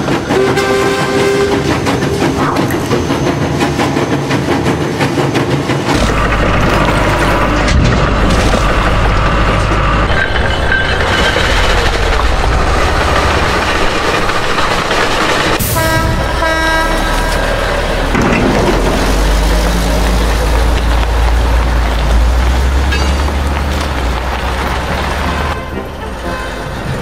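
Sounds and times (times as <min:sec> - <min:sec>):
heavy machinery engine rumble: 0:05.8 - 0:27.0.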